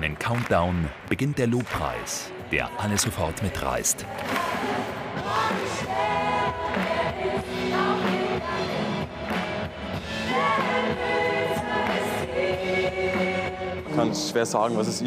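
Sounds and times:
live band playing worship song: 0:04.0 - 0:14.2
woman singing into microphone: 0:04.1 - 0:09.1, 0:10.3 - 0:14.0.

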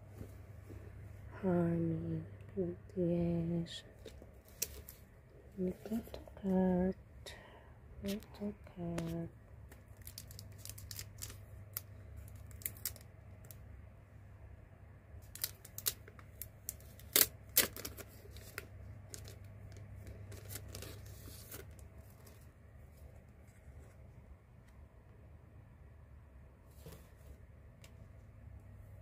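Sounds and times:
low steady hum: 0:00.0 - 0:29.0
plastic sleeve crinkling: 0:04.0 - 0:06.2, 0:09.0 - 0:13.6, 0:15.2 - 0:22.5.

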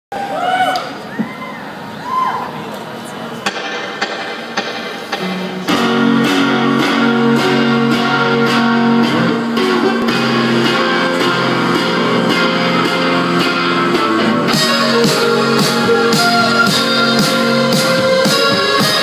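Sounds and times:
drums: 0:03.3 - 0:19.0
electric guitar chords: 0:05.0 - 0:19.0.

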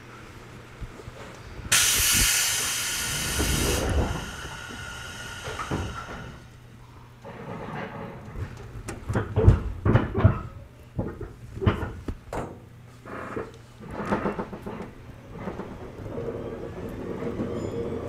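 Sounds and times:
clunks inside train car: 0:01.7 - 0:06.5, 0:07.4 - 0:12.7.

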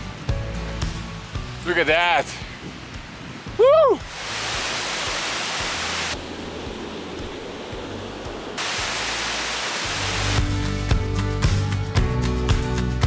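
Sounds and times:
rushing water: 0:00.0 - 0:11.4.

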